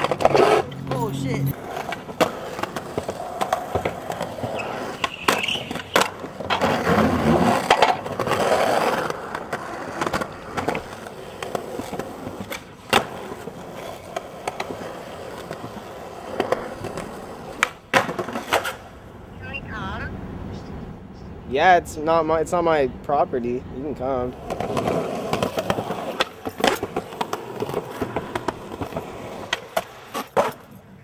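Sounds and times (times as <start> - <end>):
skateboard clacks: 0.0 - 0.8, 1.6 - 18.9, 24.3 - 30.8
skateboard wheels rolling on concrete: 0.0 - 31.0.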